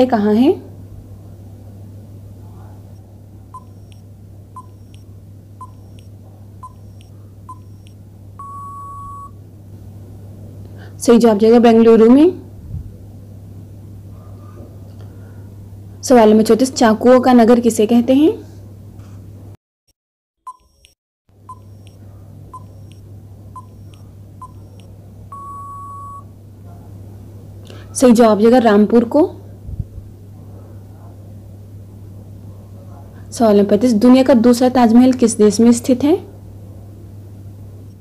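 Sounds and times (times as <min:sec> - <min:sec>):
faint steady hum: 0:00.0 - 0:19.6, 0:20.5 - 0:38.0
short beeps: 0:03.6 - 0:04.0, 0:04.6 - 0:05.0, 0:05.6 - 0:09.4, 0:20.5 - 0:22.0, 0:22.6 - 0:23.0, 0:23.6 - 0:26.3
long beep: 0:06.6 - 0:09.4, 0:23.6 - 0:26.3.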